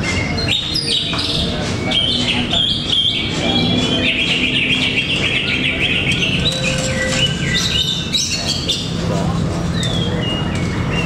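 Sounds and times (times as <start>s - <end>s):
caged birds singing: 0.0s - 11.0s.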